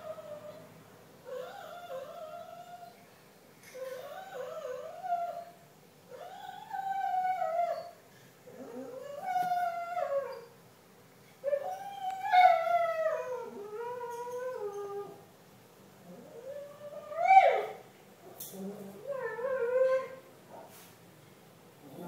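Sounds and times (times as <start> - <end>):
dog howling: 16.2 - 17.8, 18.6 - 20.2.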